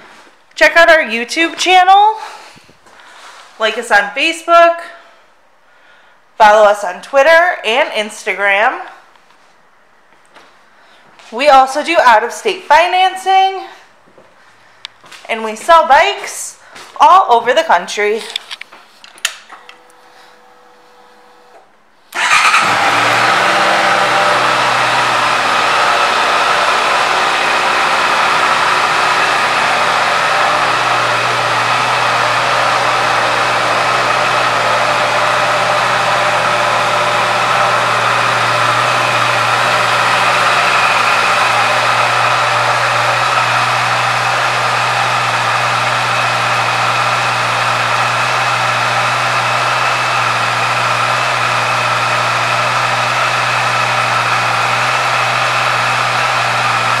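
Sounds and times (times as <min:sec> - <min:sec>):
motorcycle engine idling: 0:22.2 - 0:28.8.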